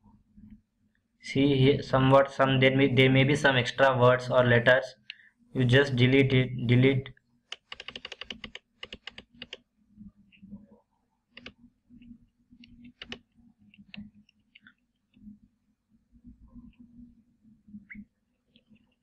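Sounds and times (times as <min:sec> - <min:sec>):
faint low hum: 0:09.5 - 0:19.0
keyboard keys tapping: 0:11.4 - 0:14.7.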